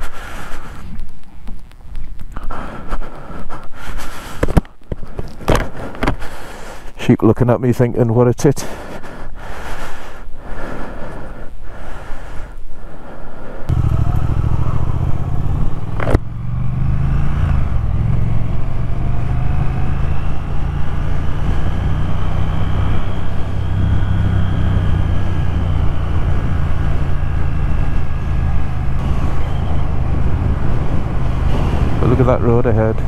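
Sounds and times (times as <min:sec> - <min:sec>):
motorcycle engine accelerating: 0:13.7 - 0:33.0.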